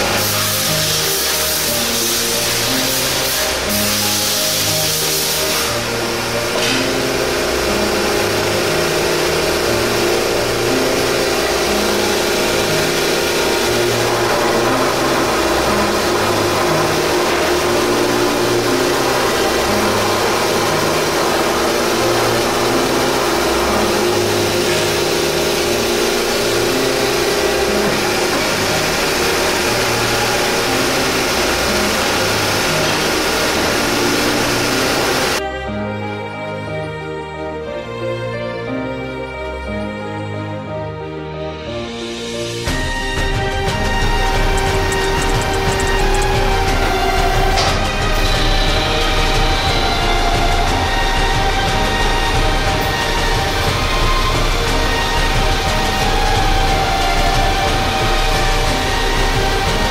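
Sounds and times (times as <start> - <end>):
circular saw cutting metal: 0.0 - 35.4, 42.6 - 59.9.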